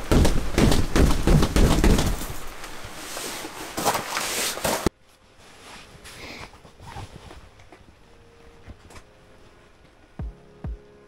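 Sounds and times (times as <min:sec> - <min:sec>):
hand thumping fabric roof: 0:00.0 - 0:02.5
fabric rustling: 0:00.0 - 0:09.8
faint hum: 0:04.8 - 0:11.0.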